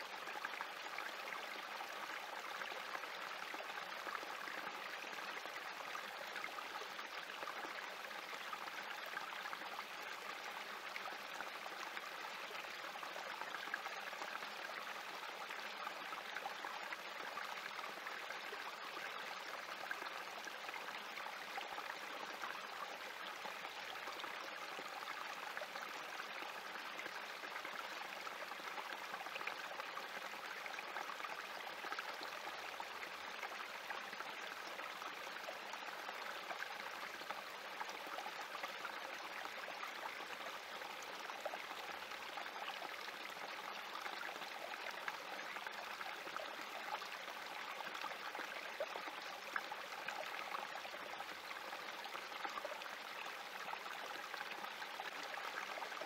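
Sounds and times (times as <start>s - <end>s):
creek trickling over rocks: 0.0s - 56.0s.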